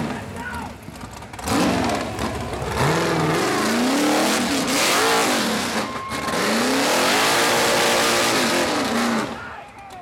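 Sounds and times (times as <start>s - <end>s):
buggy engine revving hard: 1.0s - 9.4s.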